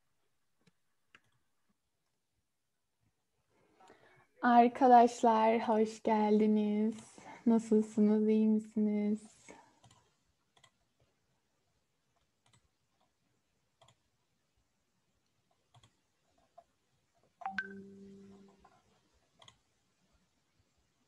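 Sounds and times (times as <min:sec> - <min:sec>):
computer clicks: 0:09.8 - 0:10.8
low steady tone: 0:17.4 - 0:18.6.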